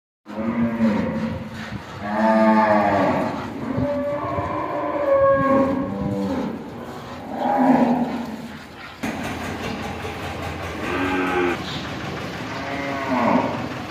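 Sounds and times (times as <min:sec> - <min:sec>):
cattle mooing: 0:00.3 - 0:08.6, 0:10.8 - 0:11.6, 0:12.5 - 0:13.7.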